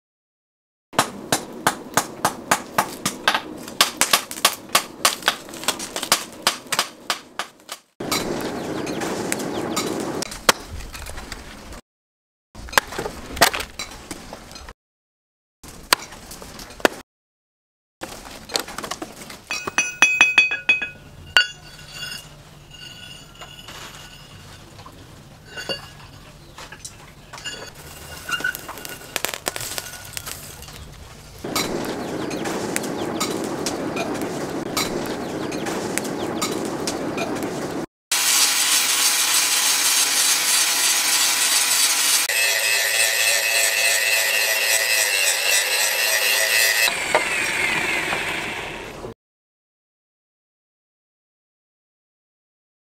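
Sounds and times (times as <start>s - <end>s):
axe chopping dry wood: 1.0s - 7.8s
charcoal clinking: 19.5s - 30.9s
chickens clucking: 31.4s - 37.7s.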